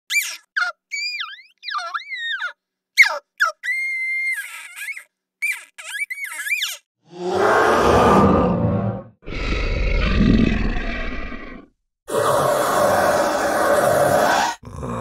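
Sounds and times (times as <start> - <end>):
creature squeals and chirps: 0.1 - 6.9.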